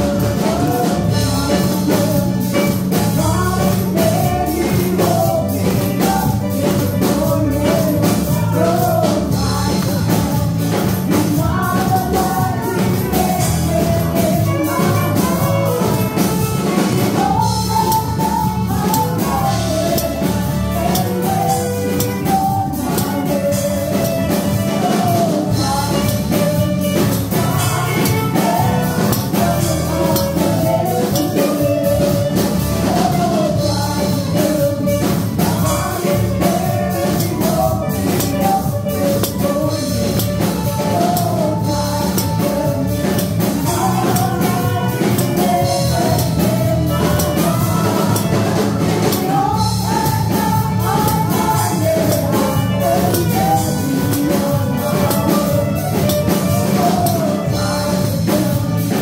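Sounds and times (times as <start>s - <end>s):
person singing worship melody: 0.0s - 59.0s
steady drum beat: 0.0s - 59.0s.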